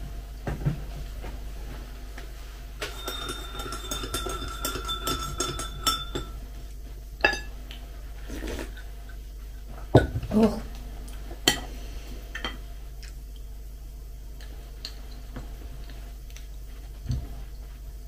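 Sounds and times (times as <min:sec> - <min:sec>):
spoon clinking in ceramic cup: 0:02.8 - 0:06.4.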